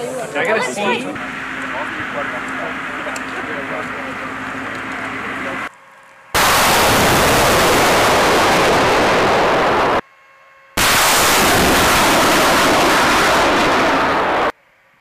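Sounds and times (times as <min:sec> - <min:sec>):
rocket launch roar: 0:06.4 - 0:10.0, 0:10.8 - 0:14.6.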